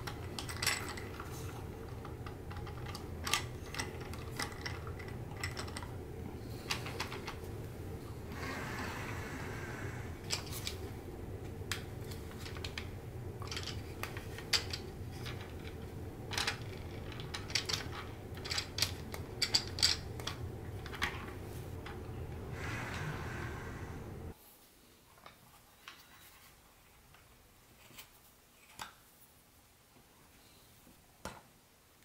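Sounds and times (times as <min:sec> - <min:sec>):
steady low hum: 0:00.0 - 0:24.4
plastic toy parts clicking: 0:11.7 - 0:21.3.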